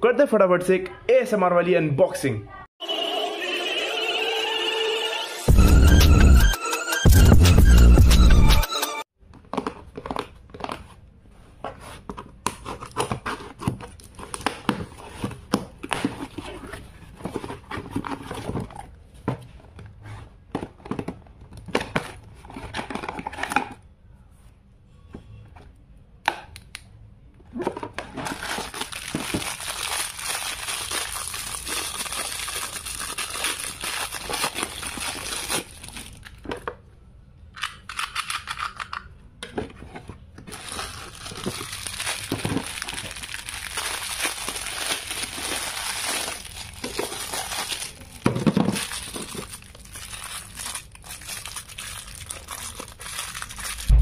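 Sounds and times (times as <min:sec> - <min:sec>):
packaging tearing and crinkling: 0:28.1 - 0:36.4, 0:40.5 - 0:54.0.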